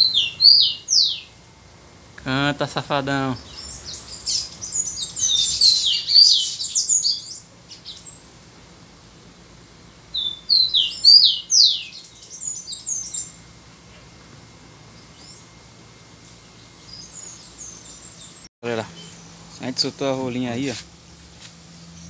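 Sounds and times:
songbird whistling: 0:00.0 - 0:01.3, 0:03.4 - 0:08.2, 0:10.1 - 0:13.4.

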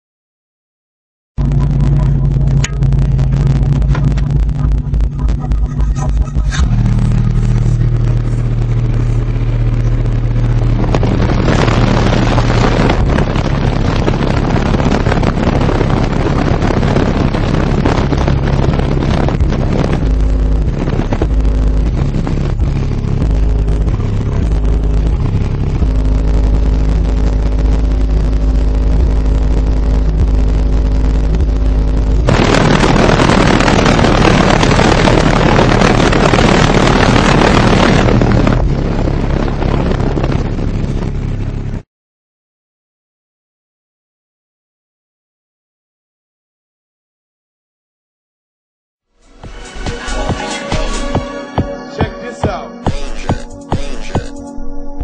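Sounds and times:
harsh buzzing: 0:01.4 - 0:41.8
loud deep bass from subwoofers: 0:01.4 - 0:41.8, 0:49.2 - 0:55.0.

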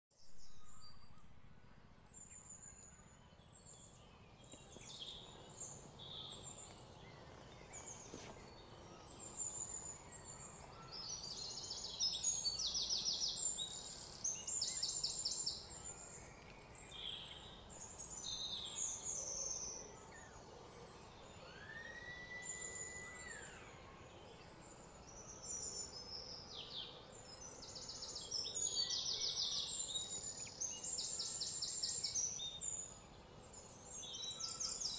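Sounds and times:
birds chirping and trilling: 0:00.2 - 0:34.9
outdoor background hiss: 0:00.2 - 0:34.9
long whistled bird note: 0:21.4 - 0:24.0.

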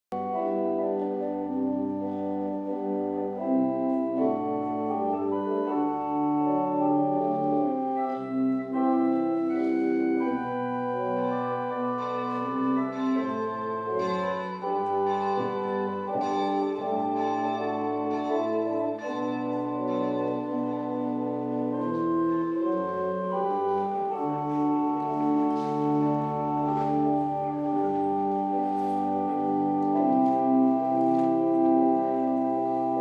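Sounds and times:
organ playing slow chords: 0:00.2 - 0:33.0.

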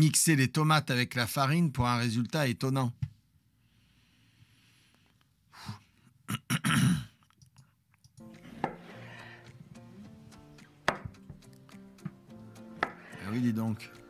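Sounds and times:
background music: 0:08.2 - 0:14.0
knife chopping on cutting board: 0:08.4 - 0:09.0, 0:10.8 - 0:11.4, 0:12.0 - 0:13.2.

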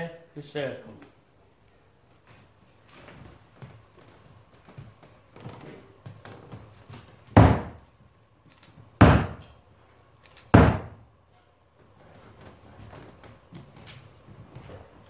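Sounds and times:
loud echoing knocks: 0:07.4 - 0:07.8, 0:09.0 - 0:09.4, 0:10.6 - 0:11.0.

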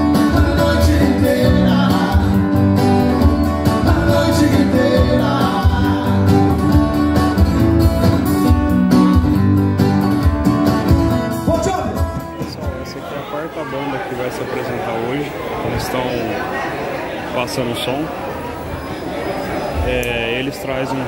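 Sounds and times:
man singing: 0:00.0 - 0:06.8
bass: 0:00.0 - 0:12.8
strummed acoustic guitars: 0:00.0 - 0:13.4.

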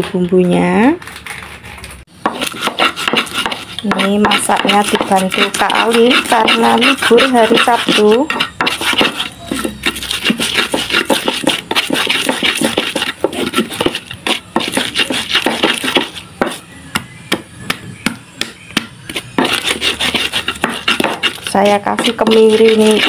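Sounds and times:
pestle pounding in mortar: 0:02.2 - 0:23.0
sharp pestle taps: 0:02.2 - 0:23.0.

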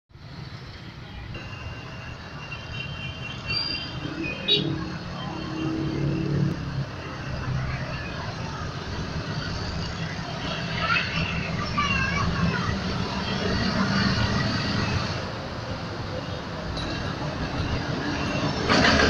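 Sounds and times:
diesel locomotive engine rumble: 0:00.2 - 0:19.0.

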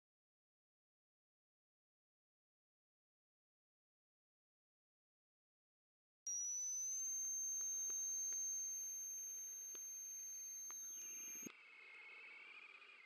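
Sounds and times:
faint wavering lower tone: 0:06.3 - 0:13.0
steady high-pitched tone: 0:06.3 - 0:13.0.

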